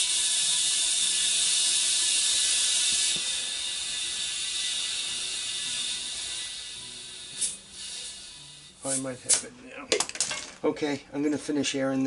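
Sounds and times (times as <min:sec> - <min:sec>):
compressed air hissing into tire: 0:00.0 - 0:09.5.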